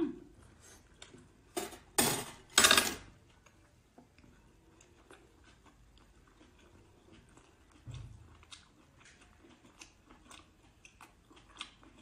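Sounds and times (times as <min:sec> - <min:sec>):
closed-mouth chewing: 0:03.3 - 0:12.0.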